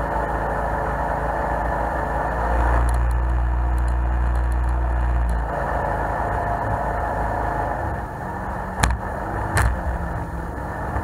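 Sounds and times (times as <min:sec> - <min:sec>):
boat engine running: 0:00.0 - 0:11.0
sharp knocks: 0:08.8 - 0:09.0.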